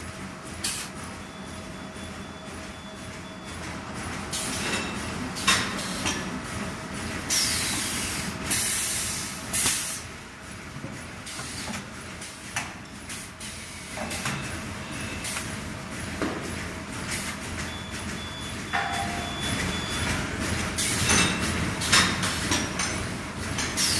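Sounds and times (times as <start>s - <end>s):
pneumatic air hissing: 7.3s - 10.0s
machine humming: 11.3s - 23.9s.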